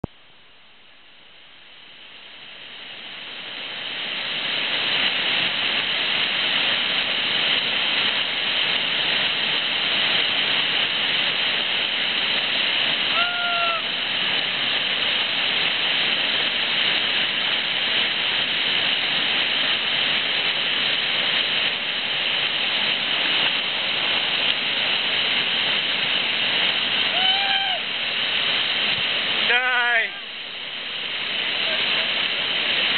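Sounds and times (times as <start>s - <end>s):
whitewater rushing over rapids: 1.7s - 32.9s
person shouting: 13.1s - 13.9s, 27.1s - 27.8s.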